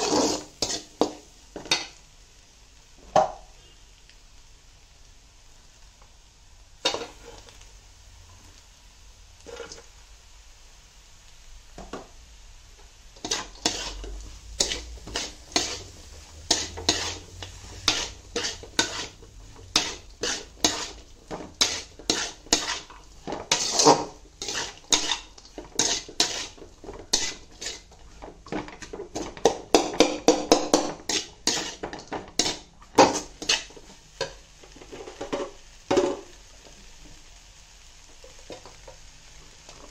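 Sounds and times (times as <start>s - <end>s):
steel spatula scraping a metal pan: 0.0s - 1.1s, 6.8s - 7.5s, 13.2s - 33.9s.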